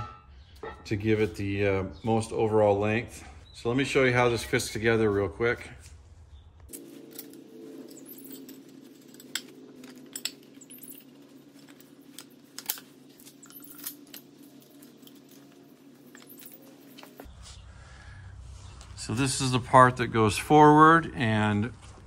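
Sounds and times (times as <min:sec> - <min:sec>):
metal parts clinking: 0:06.7 - 0:17.3.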